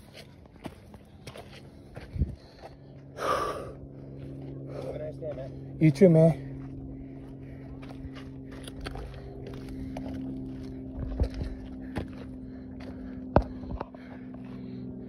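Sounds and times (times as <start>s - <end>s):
footsteps on rocky trail: 0.0s - 15.0s
steady motor drone: 0.0s - 15.0s.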